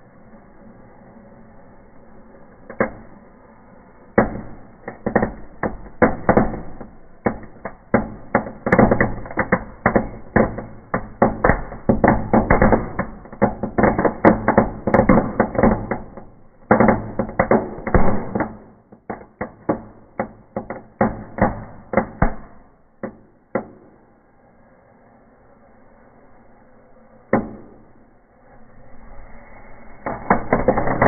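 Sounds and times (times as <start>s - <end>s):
firecrackers banging: 4.1s - 24.2s, 27.3s - 28.1s, 29.4s - 31.0s
low hiss: 23.8s - 31.0s.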